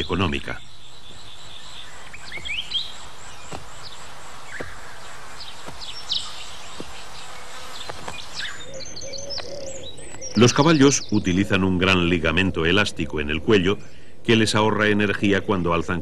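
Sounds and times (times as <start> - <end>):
insect drone: 0.0 - 11.6
bird chirps: 0.0 - 16.0.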